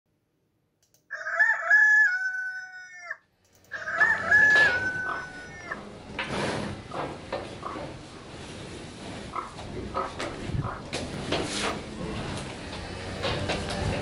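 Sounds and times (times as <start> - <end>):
background noise: 0.1 - 14.0
rooster crowing: 1.1 - 5.8.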